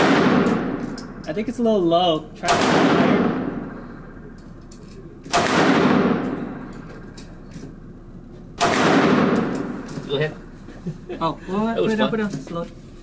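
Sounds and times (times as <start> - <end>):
pistol shot with echo: 0.0 - 1.2, 2.4 - 4.4, 5.2 - 7.9, 8.6 - 9.9.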